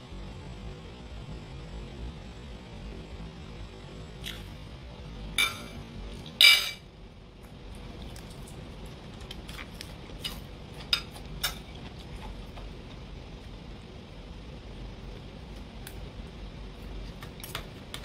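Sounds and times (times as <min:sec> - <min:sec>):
metal spoon clinking on plate: 0:05.4 - 0:05.8, 0:06.4 - 0:06.8.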